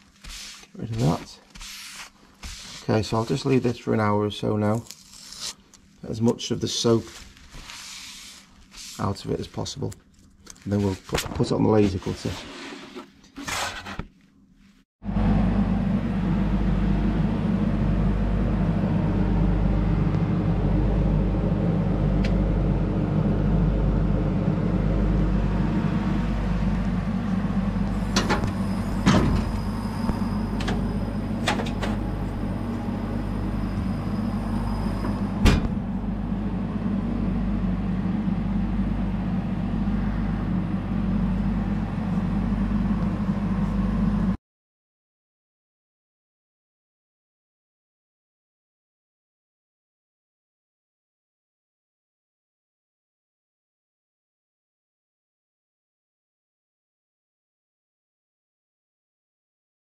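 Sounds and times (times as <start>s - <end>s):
fan drone: 15.0s - 44.4s.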